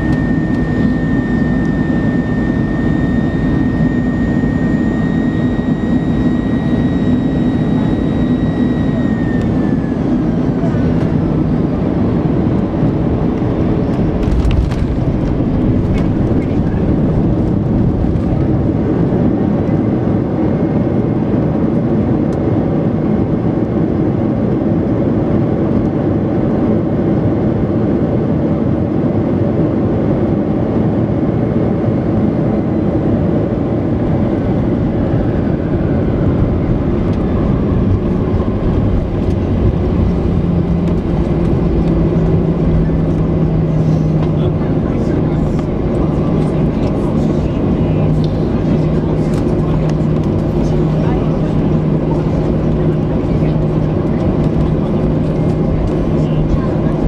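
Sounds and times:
faint falling whine: 0.0s - 19.8s
engine and airflow rumble: 0.0s - 57.0s.

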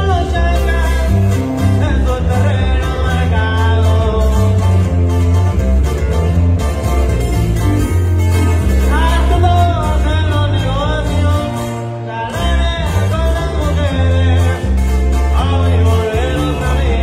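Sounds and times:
man singing: 0.0s - 5.0s, 8.7s - 17.0s
electric bass: 0.0s - 17.0s
strummed acoustic guitars: 0.0s - 17.0s.

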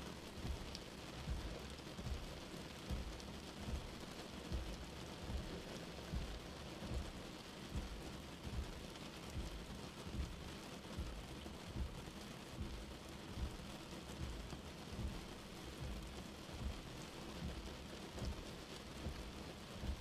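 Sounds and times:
rain on car windscreen: 0.0s - 20.0s.

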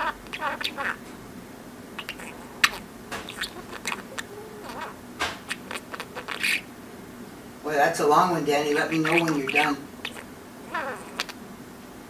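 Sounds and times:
budgerigar chattering: 0.0s - 1.0s, 2.0s - 6.7s, 8.7s - 11.4s.

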